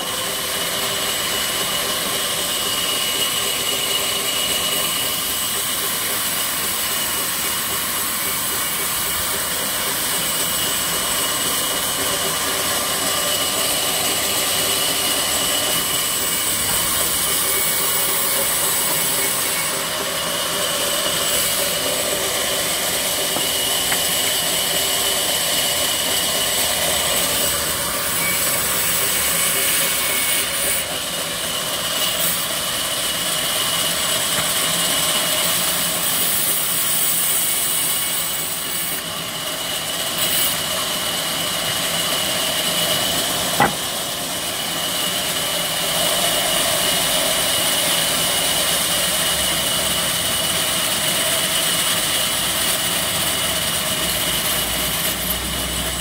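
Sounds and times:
band saw cutting wood: 0.0s - 56.0s
sharp knock: 43.6s - 43.9s.

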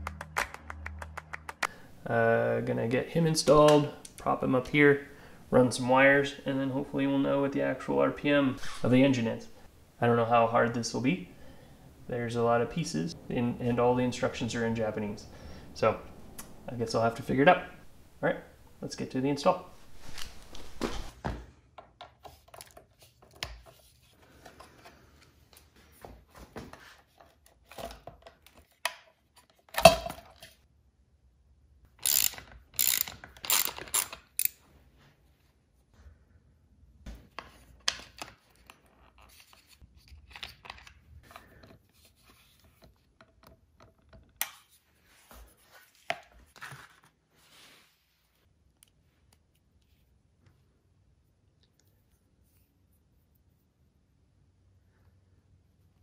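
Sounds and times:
hand tools clicking on metal: 32.0s - 34.6s
metal parts clinking: 32.0s - 34.6s
ratchet clicking: 32.0s - 34.6s.

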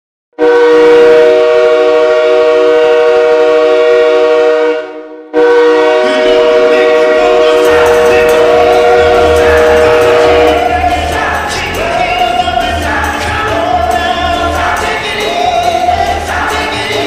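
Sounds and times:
air horn chord blasts: 0.4s - 17.0s
music: 6.2s - 17.0s.

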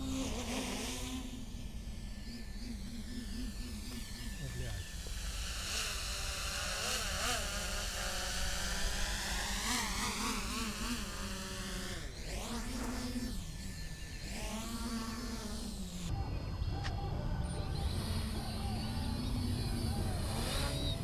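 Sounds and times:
drones buzzing in flight: 0.0s - 21.0s.

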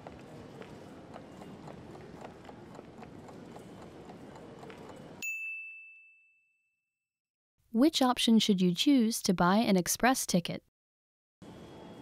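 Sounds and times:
timer ticking: 1.0s - 5.2s
bright bell-like ding: 5.2s - 6.8s.

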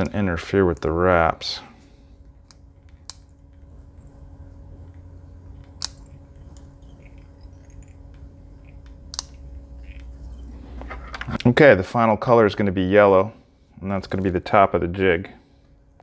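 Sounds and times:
low steady hum: 0.0s - 16.0s
scissors snipping hair: 5.6s - 10.1s.

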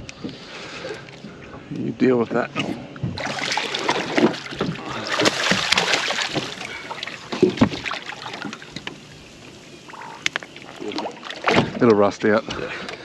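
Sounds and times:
turtle splashing in water: 3.2s - 8.8s.

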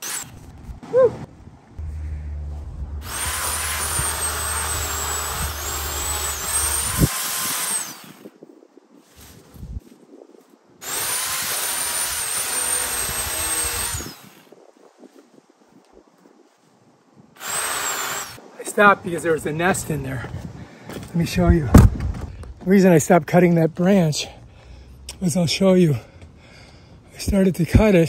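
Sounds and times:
electric chainsaw cutting branches: 0.0s - 0.5s, 3.0s - 8.3s, 10.8s - 14.5s, 17.4s - 18.4s.

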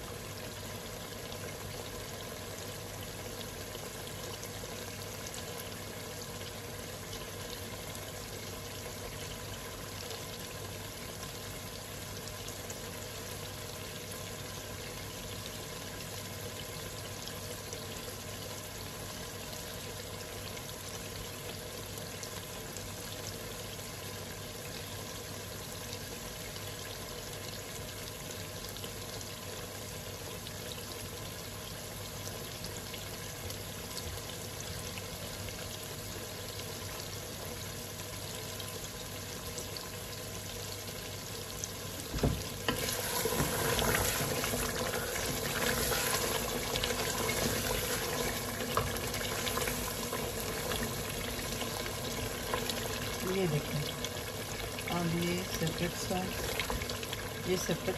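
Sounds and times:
meat frying in oil: 0.0s - 57.9s
knock: 42.1s - 42.5s.

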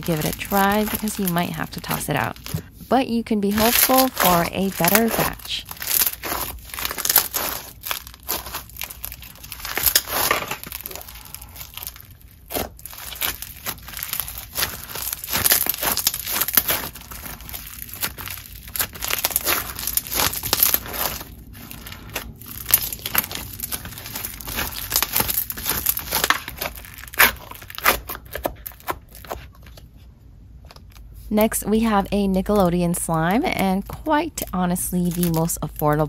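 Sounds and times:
foam bead slime crackling: 0.0s - 29.9s, 30.6s - 36.0s.

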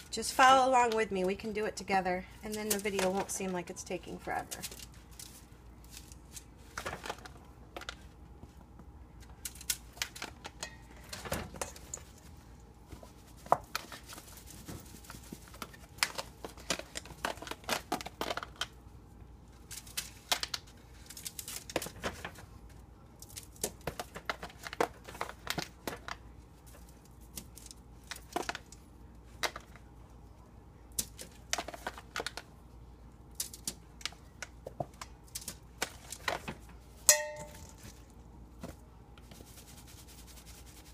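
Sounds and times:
aluminium foil crinkling: 2.3s - 8.0s, 9.2s - 12.3s, 13.1s - 18.8s, 19.4s - 29.9s, 33.3s - 36.6s.

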